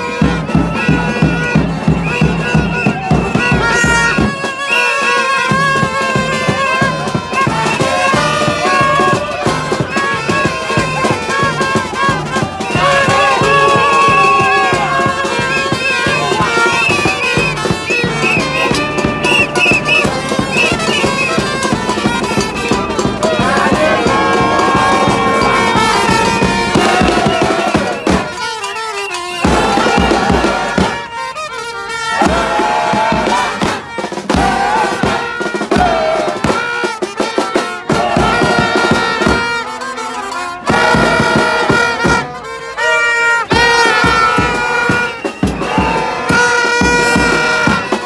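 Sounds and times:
brass horns playing a tune: 0.0 - 48.0
plastic vuvuzelas blowing: 0.0 - 48.0
whistles: 2.0 - 3.3, 4.0 - 5.2, 15.4 - 21.6, 27.8 - 30.3, 44.2 - 46.4.

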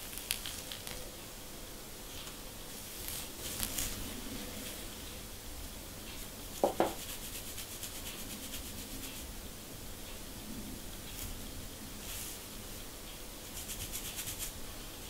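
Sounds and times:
comb scratching scalp: 0.0 - 1.0, 2.8 - 4.7, 6.2 - 9.3, 13.4 - 14.6
loud knocks: 6.6 - 7.0.

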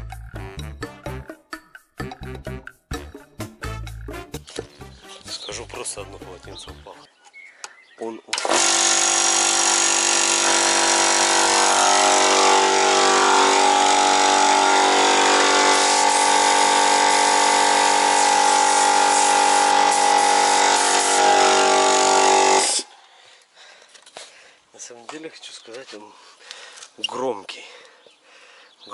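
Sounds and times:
electric air compressor running: 8.4 - 22.9.

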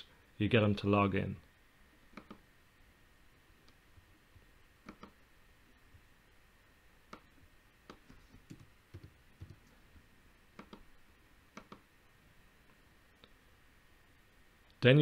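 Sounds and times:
computer mouse clicks: 2.1 - 2.4, 4.8 - 5.2, 7.1 - 7.3, 10.6 - 10.9, 11.5 - 11.8.

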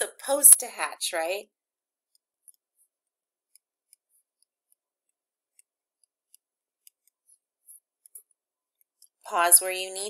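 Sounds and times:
pen scratching on paper: 2.0 - 9.2.

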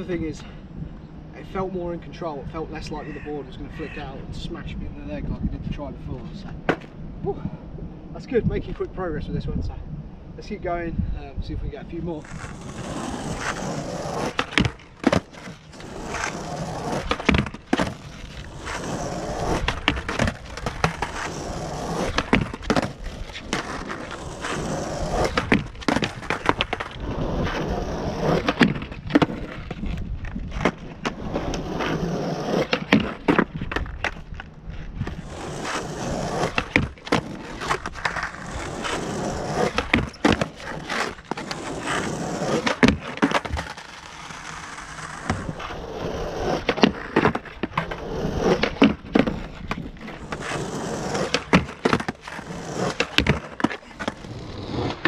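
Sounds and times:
skateboard wheels rolling on asphalt: 0.0 - 55.0
skateboard clacks and knocks: 12.2 - 27.6, 28.2 - 45.7, 46.3 - 55.0.

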